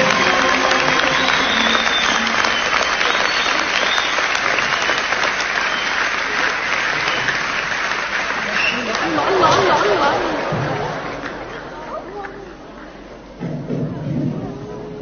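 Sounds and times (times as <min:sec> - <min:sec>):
band held notes: 0:00.0 - 0:06.0
audience applauding: 0:00.0 - 0:13.3.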